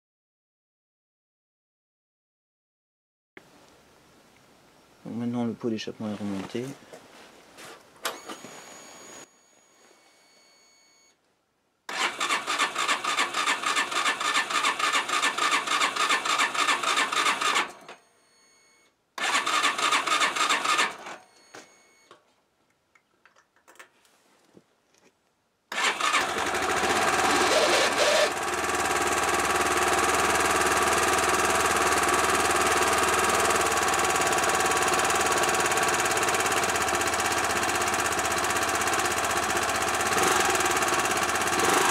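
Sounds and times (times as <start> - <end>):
engine cranking on starter: 11.9 - 18.0, 19.2 - 21.2, 25.7 - 41.9
motorcycle engine revving and idling: 25.8 - 41.9.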